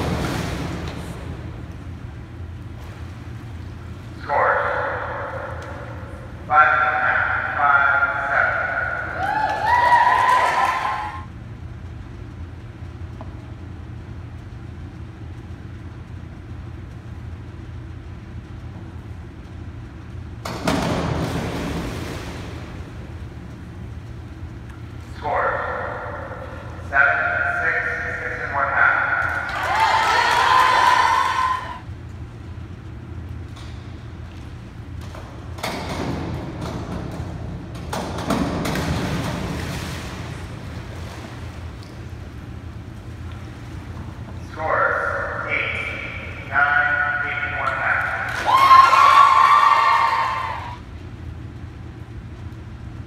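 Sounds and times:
diver splashing into pool: 0:00.0 - 0:01.4
low hum of indoor pool hall: 0:00.0 - 0:53.0
diving board knocking and rattling: 0:20.4 - 0:23.1, 0:35.0 - 0:41.7.

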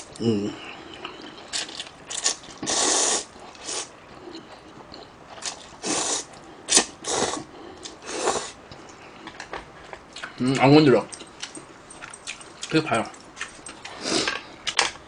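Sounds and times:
noodle slurping and chewing: 0:01.0 - 0:09.5.

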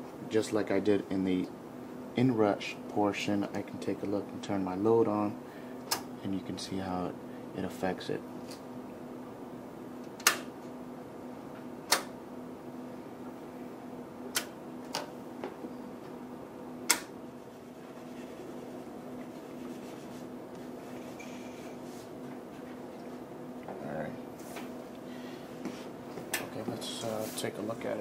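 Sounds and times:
low electrical hum: 0:00.0 - 0:28.0
switch clicks: 0:11.9 - 0:12.1.

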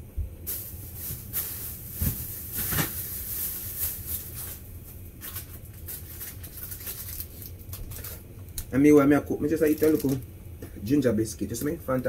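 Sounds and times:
kitchen items knocking and rustling: 0:00.5 - 0:07.1.

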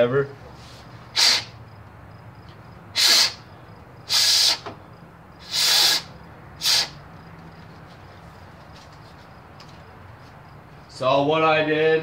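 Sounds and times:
short hisses of air: 0:00.6 - 0:01.6, 0:03.0 - 0:03.5, 0:04.1 - 0:04.7, 0:05.4 - 0:07.0.

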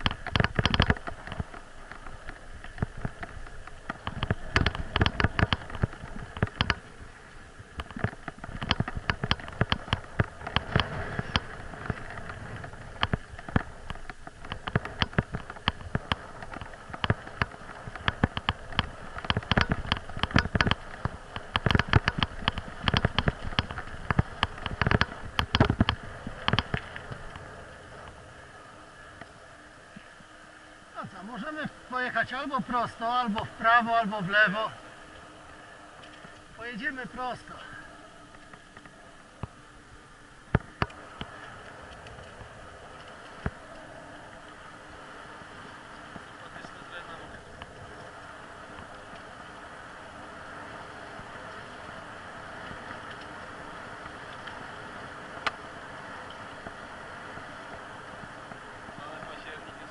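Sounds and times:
bicycle knocks and rattles: 0:00.0 - 0:28.2, 0:40.5 - 0:44.6
tyre and wind rush: 0:00.0 - 0:38.2.

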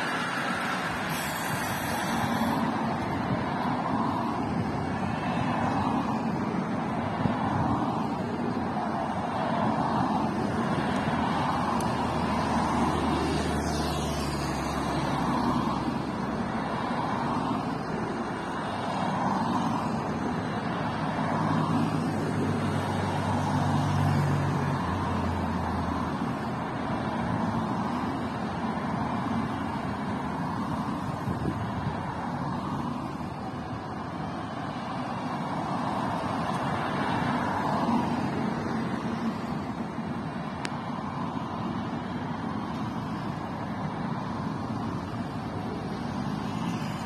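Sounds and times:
tyre noise on asphalt: 0:00.0 - 0:23.5
cars driving past: 0:00.0 - 0:47.0.

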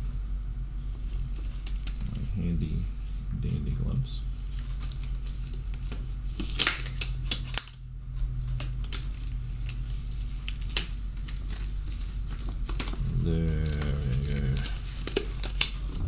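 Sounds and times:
steady low hum: 0:00.0 - 0:16.0
gloves snapping and crinkling: 0:01.3 - 0:02.1, 0:04.4 - 0:07.8, 0:08.4 - 0:16.0.

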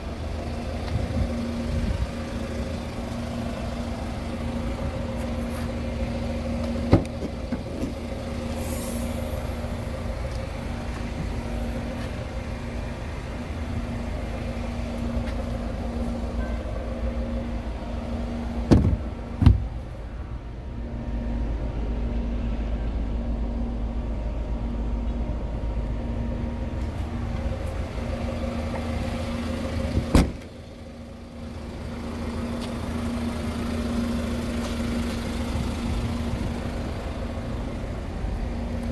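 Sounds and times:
car engine idling: 0:00.0 - 0:38.9
tailgate opening clunks: 0:06.6 - 0:08.0, 0:18.6 - 0:19.7, 0:30.0 - 0:30.5
tailgate slamming shut: 0:06.9 - 0:08.0, 0:18.7 - 0:19.7, 0:30.0 - 0:30.5.

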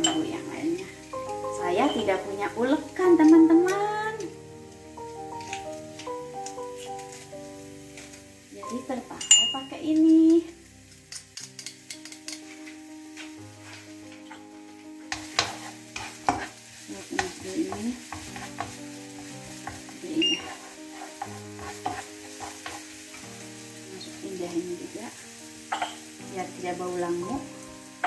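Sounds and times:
garlic sizzling in oil: 0:00.0 - 0:28.0
spatula tapping a pan: 0:11.1 - 0:12.4, 0:15.1 - 0:18.8, 0:19.5 - 0:22.9
spatula scraping a pan: 0:15.1 - 0:23.2.

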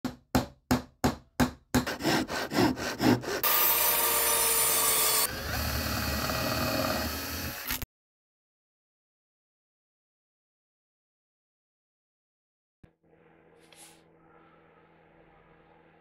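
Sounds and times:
hand saw sawing wood: 0:01.8 - 0:07.1.

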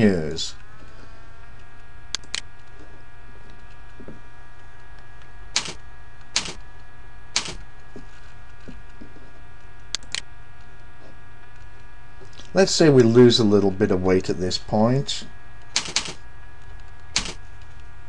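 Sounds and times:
steady electrical hum: 0:00.0 - 0:18.0
computer mouse clicks: 0:01.6 - 0:02.7.

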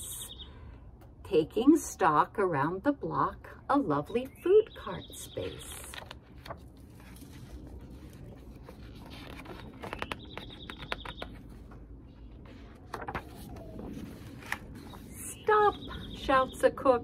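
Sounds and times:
low background rumble: 0:00.0 - 0:17.0
paper pages rustling: 0:05.6 - 0:15.2.

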